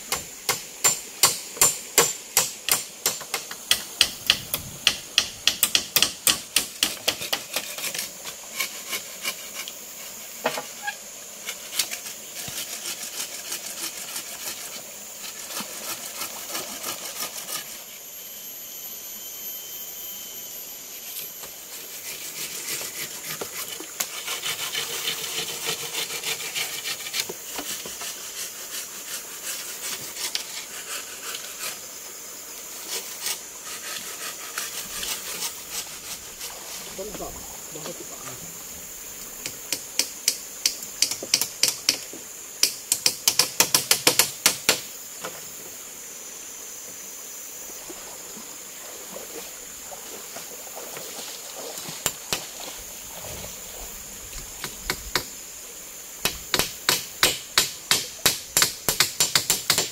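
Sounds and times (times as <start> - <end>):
sharp knocks on wood: 56.2 - 59.9.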